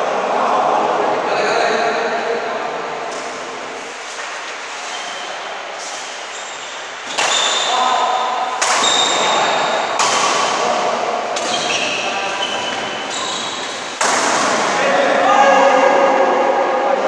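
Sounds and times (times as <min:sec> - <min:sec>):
rackets hitting shuttlecock: 0:07.0 - 0:14.9.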